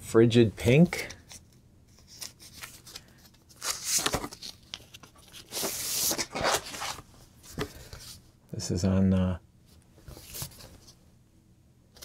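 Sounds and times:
record sleeves crinkling: 0.6s - 8.2s, 10.0s - 11.0s.

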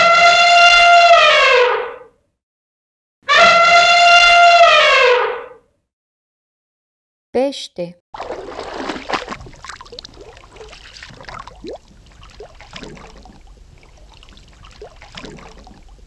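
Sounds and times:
water bubbling and gurgling: 8.2s - 16.0s.

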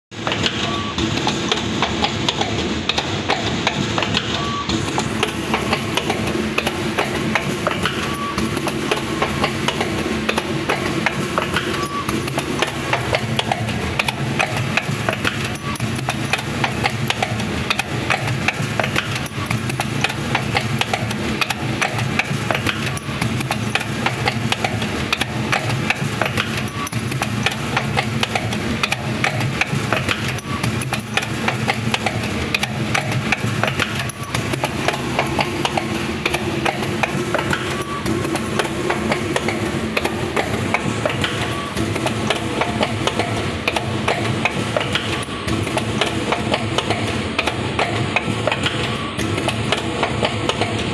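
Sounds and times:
machinery low hum: 0.2s - 50.9s
wire-forming machine clicking and knocking: 0.2s - 50.9s.

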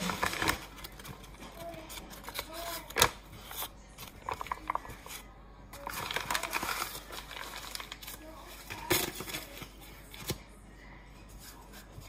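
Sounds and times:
flour bag rustling and crinkling: 0.0s - 10.5s.

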